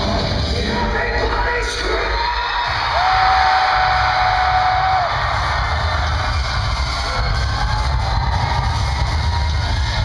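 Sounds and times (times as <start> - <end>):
live metal band playing: 0.0 - 1.3
crowd cheering and shouting: 0.0 - 10.0.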